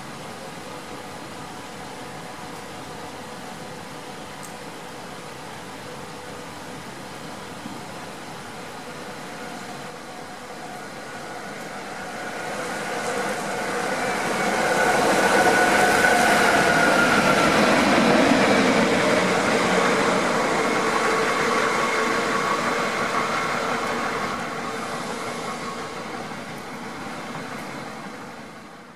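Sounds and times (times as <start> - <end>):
train wheels rumbling on rail: 0.0 - 28.9
locomotive whine: 6.6 - 28.9.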